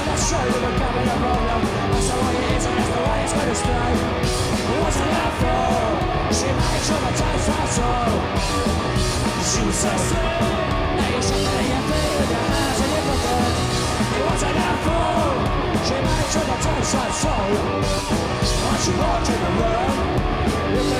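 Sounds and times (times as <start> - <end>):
punk rock band playing: 0.0 - 20.9.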